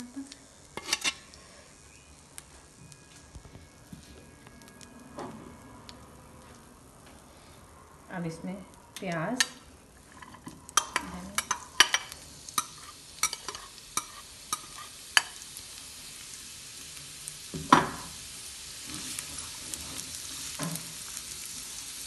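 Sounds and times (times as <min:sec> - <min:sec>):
onions sizzling in oil: 0:00.0 - 0:22.0
spatula stirring in pan: 0:10.0 - 0:15.4, 0:18.5 - 0:22.0.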